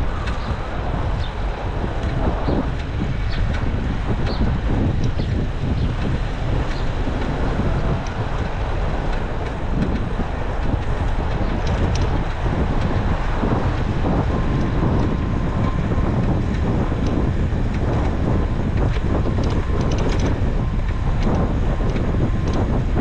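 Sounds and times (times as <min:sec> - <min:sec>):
faint bicycle ticks: 0:00.0 - 0:23.0
wind buffeting microphone: 0:00.0 - 0:23.0.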